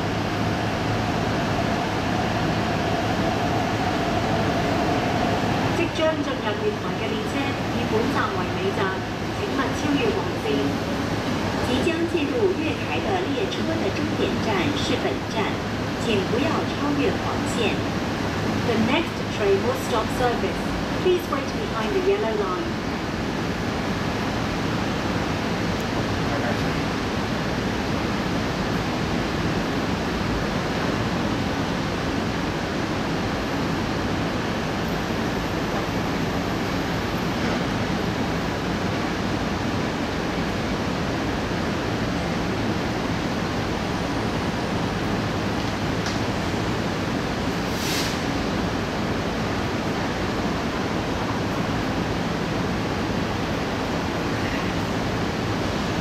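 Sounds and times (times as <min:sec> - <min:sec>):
steady rushing noise: 0:00.0 - 0:56.0
train rumbling into platform: 0:00.0 - 0:56.0
brief hiss: 0:47.7 - 0:48.4.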